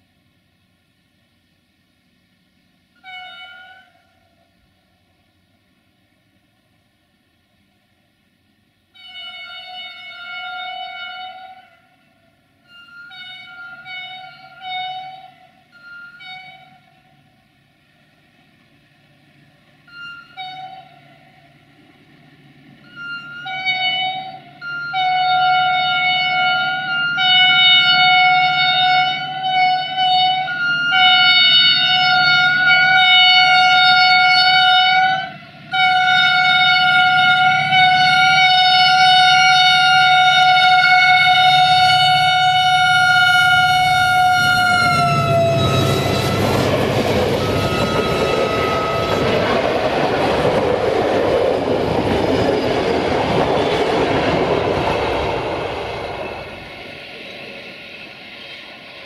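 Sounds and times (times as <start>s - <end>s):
low rumble of train: 0.0s - 59.0s
train horn blasts: 2.9s - 5.0s, 8.8s - 17.6s, 19.8s - 21.6s, 22.8s - 50.5s.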